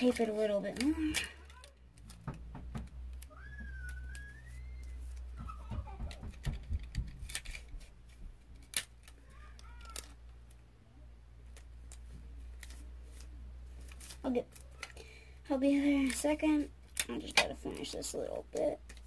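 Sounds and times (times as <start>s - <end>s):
clicks and crackles: 0.0s - 10.7s, 15.8s - 19.0s
sticky tape pulled and torn: 7.0s - 10.6s.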